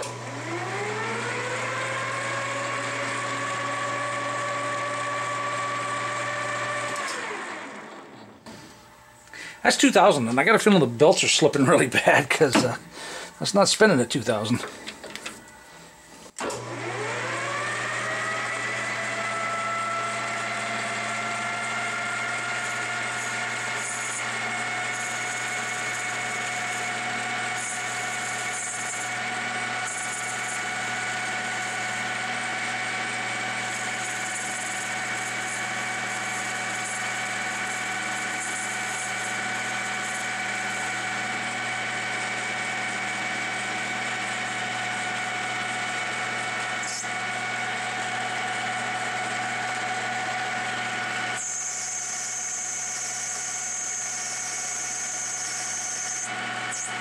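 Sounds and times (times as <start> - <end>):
metal lathe motor whine: 0.0 - 8.3, 16.4 - 57.0
tool cutting brass hiss: 22.6 - 32.1, 33.6 - 41.6, 46.7 - 47.2, 51.4 - 57.0.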